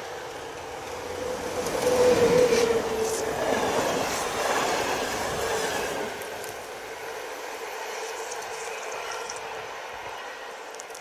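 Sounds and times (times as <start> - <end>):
train passing at speed: 0.0 - 11.0.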